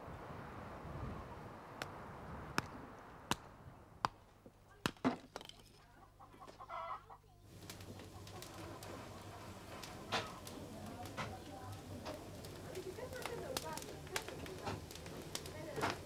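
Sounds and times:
axe chopping wood: 4.8 - 5.5.

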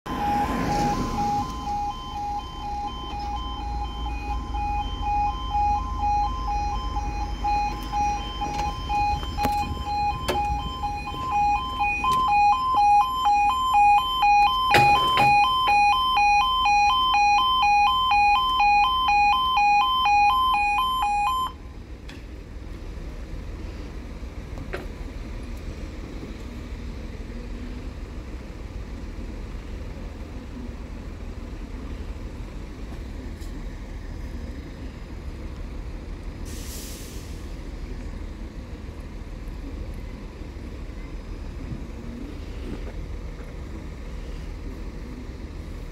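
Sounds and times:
level crossing two-tone alarm: 0.1 - 21.6
low steady background rumble: 0.2 - 45.9.

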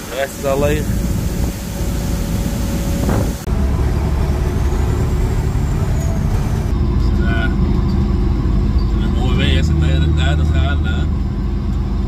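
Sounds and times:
outdoor noise: 0.0 - 12.0
truck diesel engine droning: 0.0 - 12.0.

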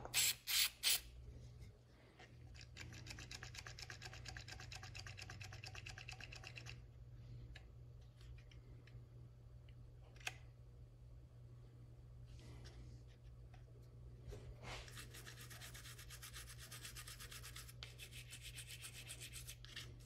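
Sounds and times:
aerosol can spraying: 0.1 - 1.0.

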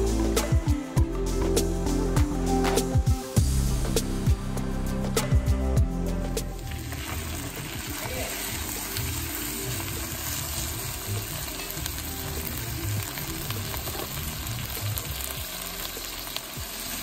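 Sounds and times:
meat sizzling in a pot: 6.5 - 17.0.

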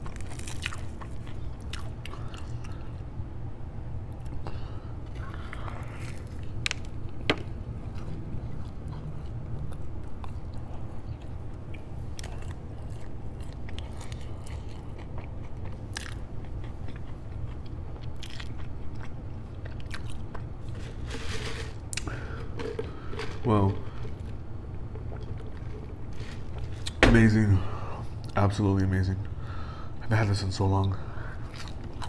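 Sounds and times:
chewing fried chicken: 0.0 - 3.2, 4.0 - 20.8, 31.1 - 32.0
steady low hum: 0.0 - 32.0.

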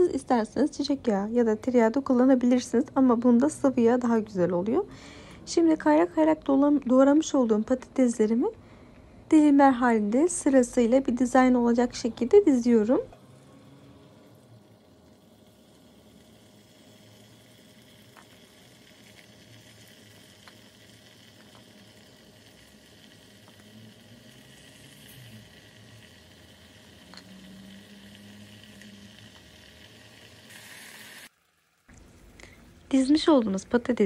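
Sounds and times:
potato slices sizzling in oil: 10.2 - 34.0.

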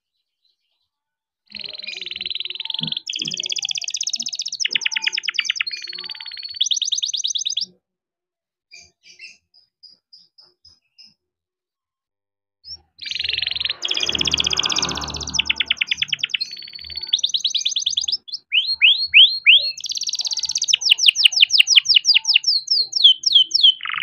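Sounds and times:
canary singing trills: 1.5 - 7.7, 12.6 - 24.0.

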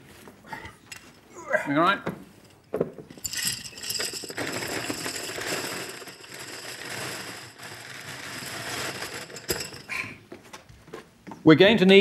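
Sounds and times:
pencils clattering into metal box: 3.1 - 10.0.

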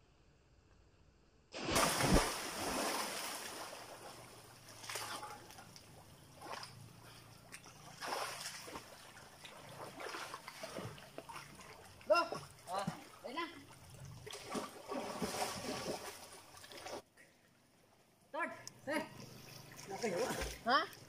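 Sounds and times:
person diving into water splash: 1.6 - 4.1, 14.3 - 16.9
swimming stroke splashes: 1.6 - 17.0, 19.4 - 20.8
water churning: 1.6 - 17.0.

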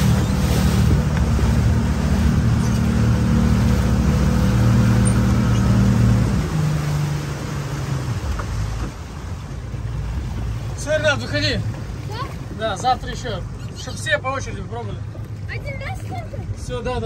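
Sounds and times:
motorboat engine running: 0.0 - 17.0
water and wind rushing: 0.0 - 17.0.

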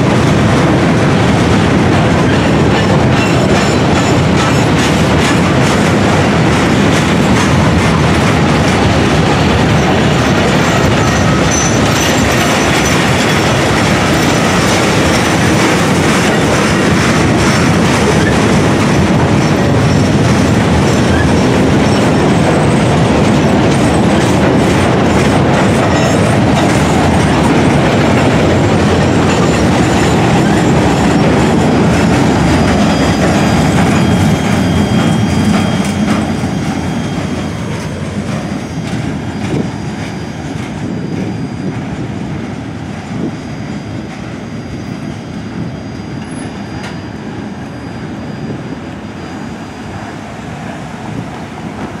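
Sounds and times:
train wheels clicking over rail joints: 0.0 - 44.4.

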